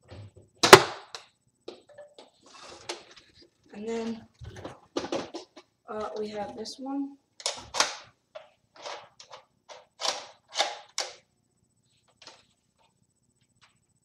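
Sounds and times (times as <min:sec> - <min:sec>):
plastic toy gun clattering: 0:07.4 - 0:08.1, 0:08.8 - 0:11.2.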